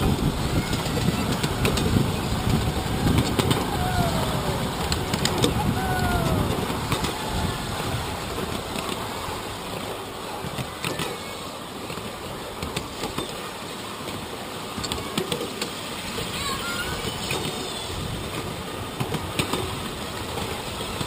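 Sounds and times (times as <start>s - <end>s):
train wheels rumbling on rail: 0.0s - 13.4s.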